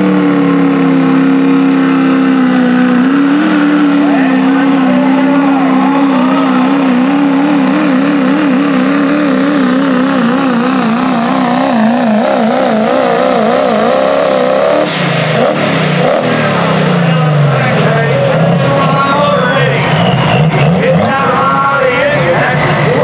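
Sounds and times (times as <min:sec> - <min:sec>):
diesel truck engine at full power: 0:00.0 - 0:23.0
turbo whistle: 0:19.3 - 0:20.8.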